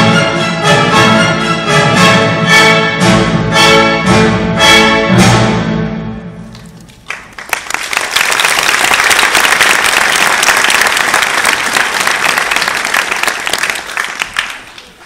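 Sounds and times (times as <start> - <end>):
crowd applause: 6.6 - 15.0.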